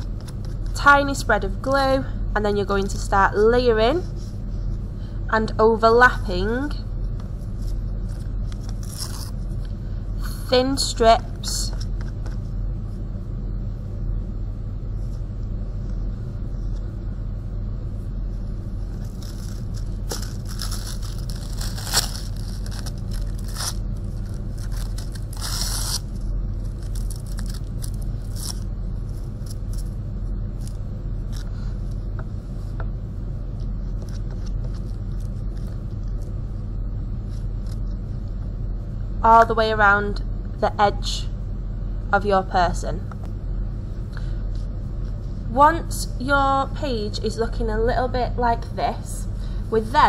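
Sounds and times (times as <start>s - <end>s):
steady low hum: 0.0s - 50.0s
tissue paper rustling and crinkling: 18.9s - 26.0s.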